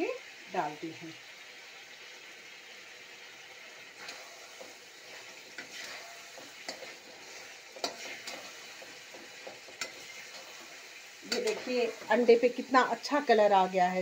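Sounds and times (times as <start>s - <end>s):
masala sizzling in a pan: 0.0s - 14.0s
spatula clacking against pan: 5.5s - 10.5s.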